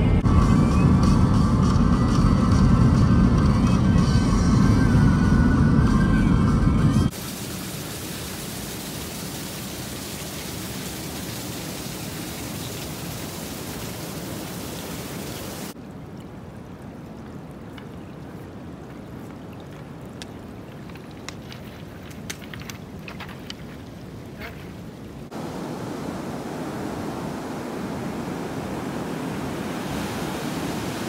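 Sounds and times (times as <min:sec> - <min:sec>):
water running over pebbles: 0:07.1 - 0:24.8
steady rushing noise: 0:25.3 - 0:31.0.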